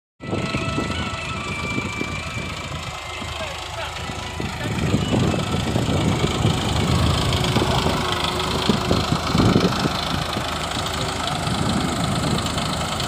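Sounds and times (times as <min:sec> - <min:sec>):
tractor diesel engine running: 0:00.2 - 0:13.0.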